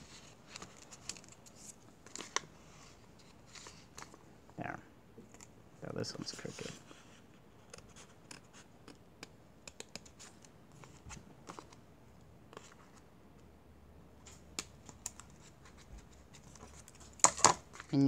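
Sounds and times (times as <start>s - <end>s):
paper rustling and clicks: 0.4s - 2.5s.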